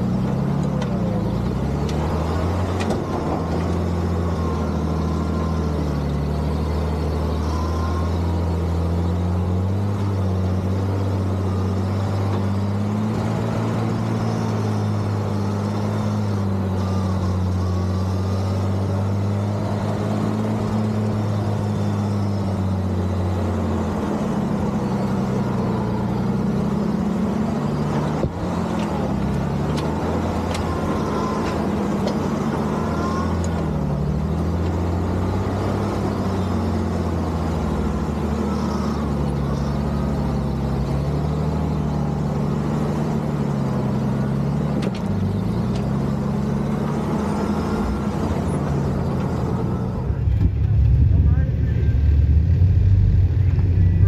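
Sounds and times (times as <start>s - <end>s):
truck engine running: 0.0s - 54.0s.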